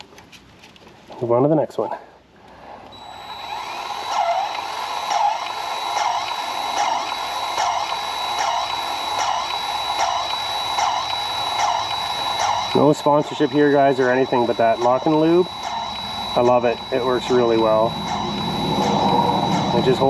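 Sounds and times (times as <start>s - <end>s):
grease gun motor whine: 2.8s - 20.0s.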